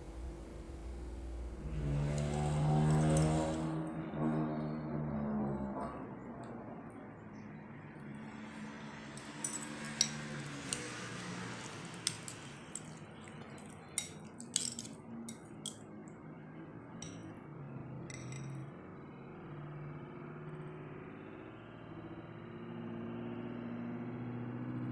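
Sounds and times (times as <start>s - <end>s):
metal utensils clinking on bowl: 2.1s - 3.7s, 9.2s - 15.8s, 17.0s - 17.3s, 18.1s - 18.6s.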